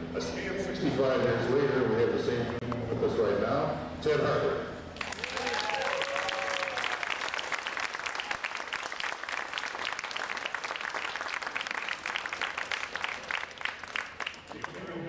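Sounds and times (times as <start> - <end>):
crowd applauding: 5.0 - 14.9.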